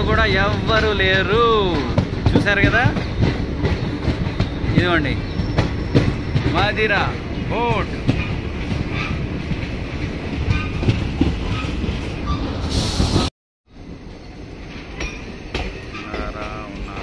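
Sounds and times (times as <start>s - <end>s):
train wheels knocking: 0.0s - 12.2s, 14.9s - 17.0s
train rumbling: 0.0s - 17.0s.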